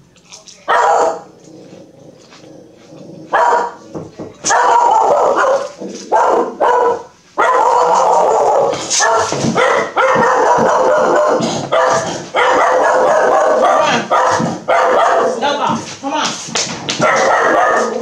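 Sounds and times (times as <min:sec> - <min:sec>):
dog barking and yelping: 0:00.7 - 0:01.3, 0:02.9 - 0:03.8, 0:04.4 - 0:15.4, 0:17.0 - 0:18.0.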